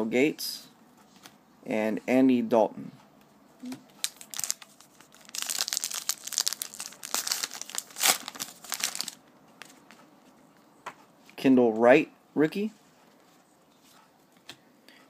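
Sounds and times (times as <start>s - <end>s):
wrapper crinkling: 4.0s - 9.2s.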